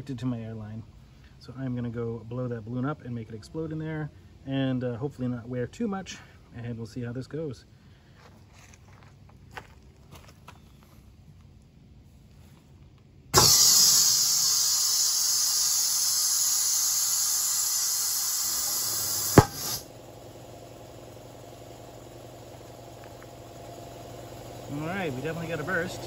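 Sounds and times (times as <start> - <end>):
balloon bursting pop: 13.4 - 13.8, 19.2 - 19.8
compressed air hissing: 13.4 - 26.0.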